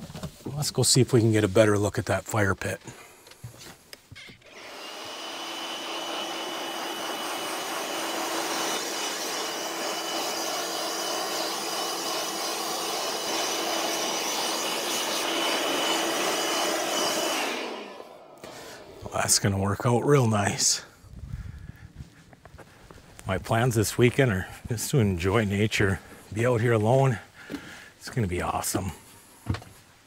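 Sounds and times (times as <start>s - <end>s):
leaf blower whining: 4.2s - 27.8s.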